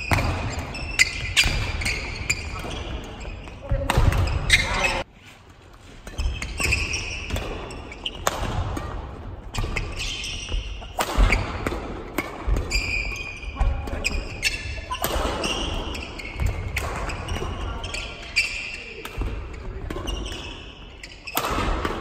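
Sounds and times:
shoes squeaking on floor: 0.0s - 8.3s, 9.5s - 11.6s, 12.4s - 21.5s
rackets striking shuttlecock: 6.1s - 17.6s, 19.0s - 22.0s.

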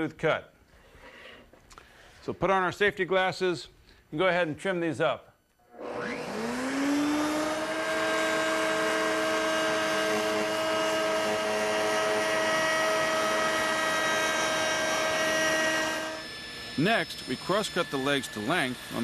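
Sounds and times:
router motor whine: 5.6s - 19.0s.

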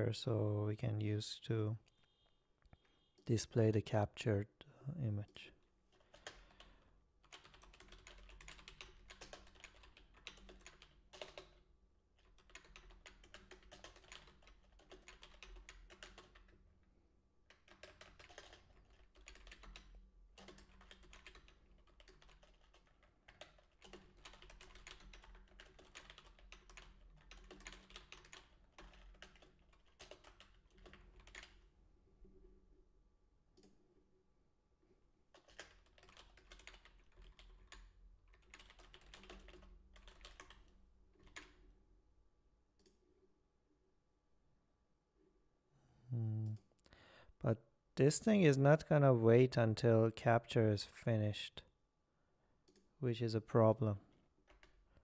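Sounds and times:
typing on a keyboard: 5.9s - 11.6s, 12.2s - 16.6s, 17.5s - 31.6s, 35.3s - 41.6s, 54.4s - 54.8s.

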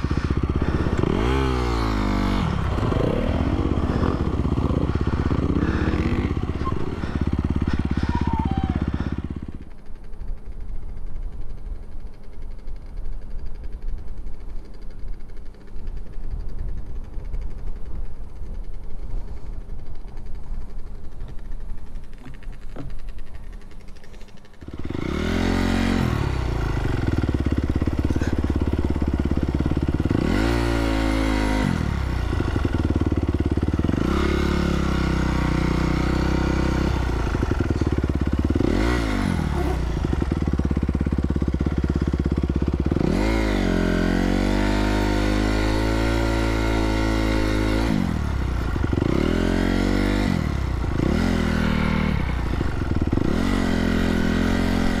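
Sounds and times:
dirt bike engine revving: 0.0s - 9.8s, 24.6s - 55.0s.

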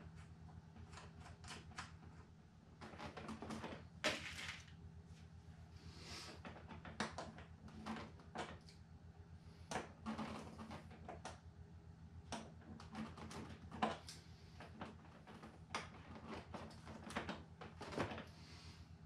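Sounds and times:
steady low hum: 0.0s - 19.0s
small clicks and taps: 12.3s - 18.2s.

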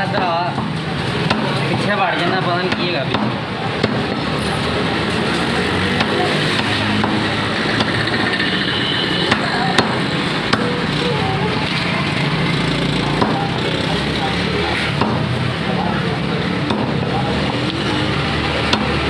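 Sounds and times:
background din of voices: 0.0s - 19.0s
knife chopping on wooden block: 13.2s - 13.4s, 15.0s - 15.3s.

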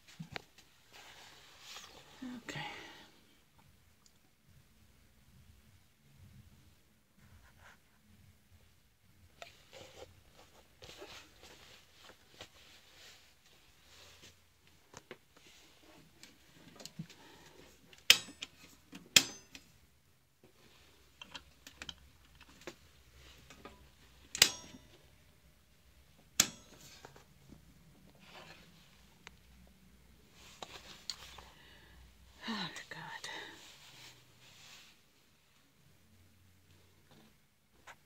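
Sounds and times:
faint rustling: 0.0s - 3.1s, 6.2s - 17.9s, 30.2s - 35.8s.

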